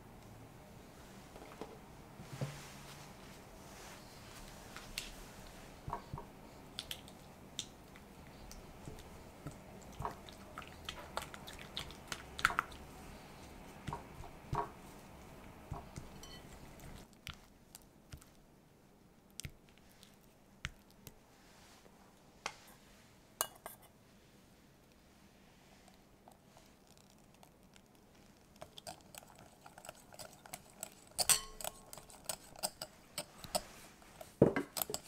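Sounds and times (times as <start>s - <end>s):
spatula squishing cream: 4.9s - 18.5s, 25.8s - 35.0s
spatula tapping glass bowl: 15.7s - 16.5s, 31.2s - 31.9s.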